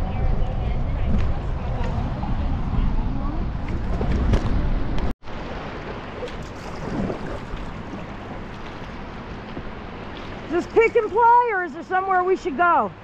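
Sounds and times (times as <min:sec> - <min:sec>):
wind rumbling on microphone: 0:00.0 - 0:13.0
river water rushing: 0:05.3 - 0:13.0.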